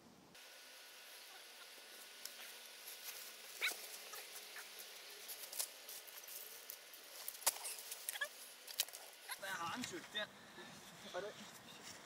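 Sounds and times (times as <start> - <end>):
fir branches rustling and crackling: 0.4 - 12.0
footsteps on frosty grass: 1.4 - 9.2.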